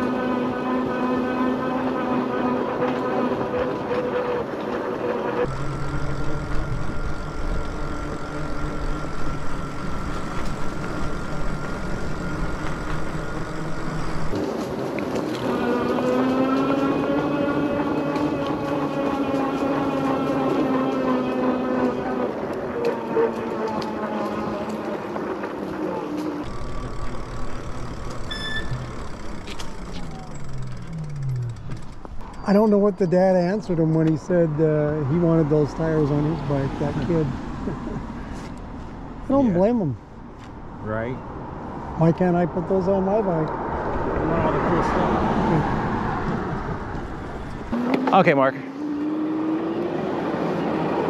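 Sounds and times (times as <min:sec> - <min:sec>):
motor hum falling in pitch: 0:00.0 - 0:14.4, 0:15.3 - 0:25.0, 0:26.1 - 0:32.1
thin steady whine: 0:00.0 - 0:14.4, 0:26.4 - 0:31.4
wind and road noise rumble: 0:00.0 - 0:51.0
short electronic beep: 0:28.2 - 0:29.0.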